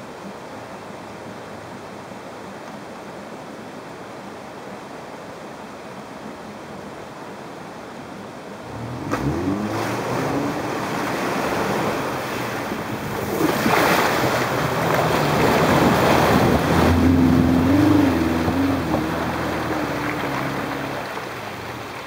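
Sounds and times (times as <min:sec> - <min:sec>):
car engine working under load: 0:08.7 - 0:22.0
water rushing and splashing: 0:08.7 - 0:22.0.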